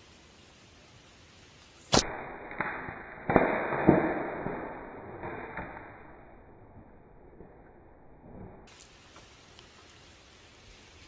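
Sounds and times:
slingshot snap: 1.9s - 4.3s
rustling through leaves and branches: 8.2s - 11.0s.

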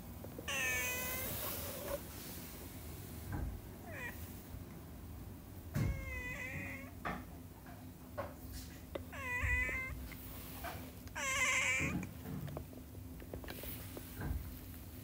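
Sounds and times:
kitten meowing: 0.5s - 1.5s, 3.8s - 4.2s, 5.8s - 7.0s, 9.1s - 10.0s, 11.2s - 12.1s.

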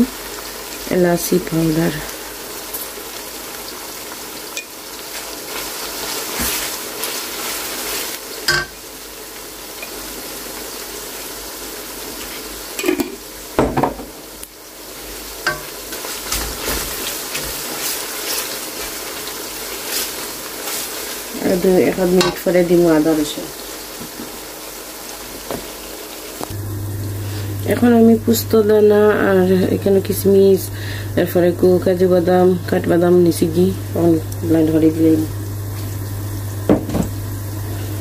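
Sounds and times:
onions sizzling in hot oil: 0.0s - 38.0s
wooden spatula stirring and scraping: 5.1s - 8.2s, 15.5s - 22.3s.

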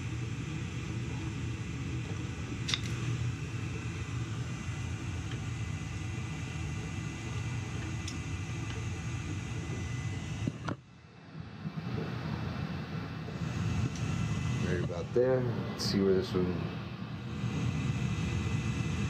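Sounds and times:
boiler burners low rumble: 0.0s - 19.0s
sharp click: 2.7s - 3.0s.

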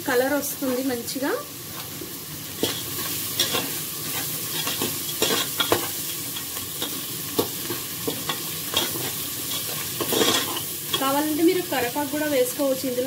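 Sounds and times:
onions sizzling in oil: 0.0s - 13.0s
metal spatula scraping pot: 2.6s - 11.2s.

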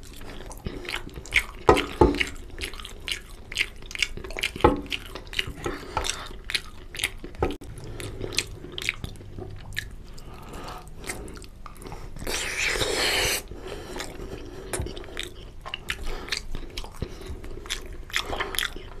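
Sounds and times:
chewing and mouth clicks: 0.0s - 19.0s.

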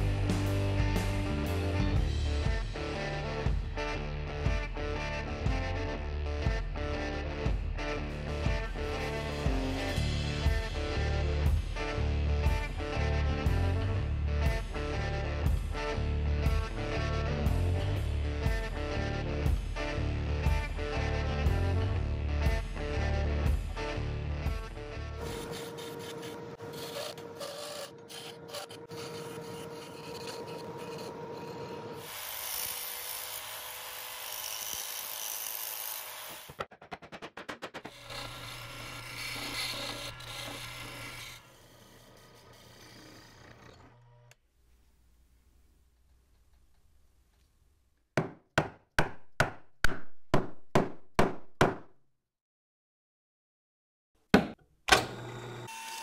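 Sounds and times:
hand saw strokes in wood: 25.2s - 33.4s
turning tool scraping wood: 25.2s - 33.5s, 37.8s - 44.0s
wood lathe humming: 25.2s - 36.4s, 38.0s - 44.4s, 54.9s - 56.0s
sharp wooden knocks: 48.2s - 51.8s.

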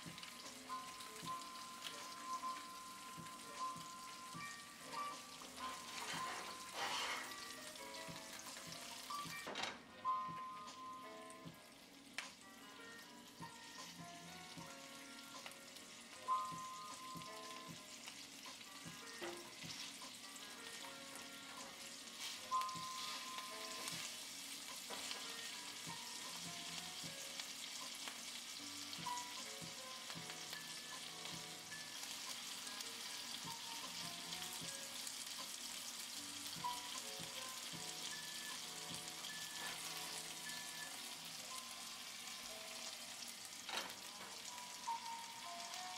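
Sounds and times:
fish sizzling in hot oil: 0.0s - 9.4s, 10.6s - 45.9s
soft musical notes: 0.0s - 24.2s.

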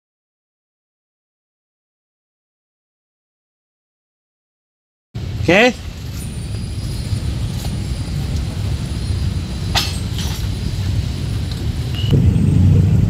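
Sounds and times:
road traffic rumble: 5.2s - 13.0s.

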